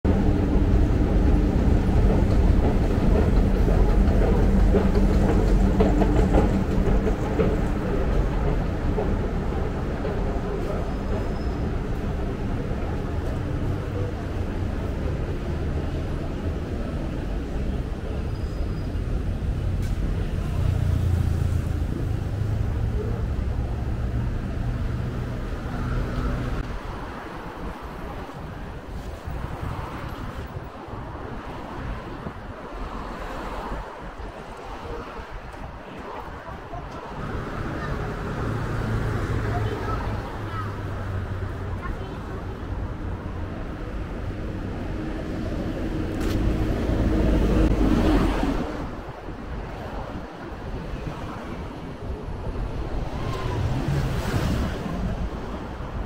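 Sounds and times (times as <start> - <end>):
escalator rumbling: 0.0 - 28.4
passing traffic: 0.0 - 56.0.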